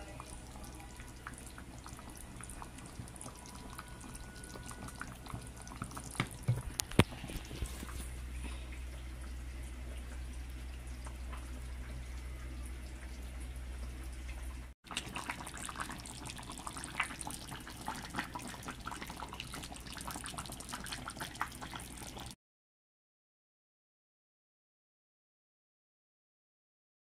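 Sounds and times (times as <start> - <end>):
broth bubbles popping: 0.2 - 8.0, 14.9 - 22.4.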